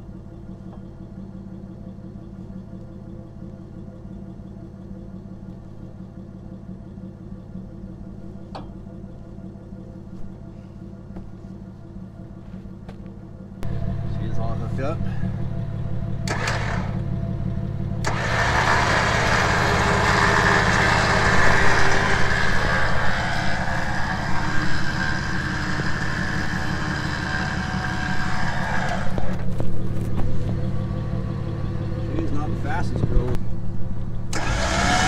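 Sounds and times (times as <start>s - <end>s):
truck engine idling: 0.0s - 35.0s
electric winch motor running: 16.2s - 17.2s, 18.0s - 29.6s, 34.3s - 35.0s.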